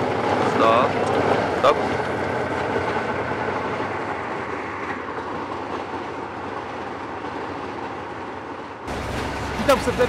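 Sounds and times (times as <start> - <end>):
tank diesel engine: 0.0 - 5.3, 8.9 - 10.0
steel tracks clattering: 0.0 - 10.0.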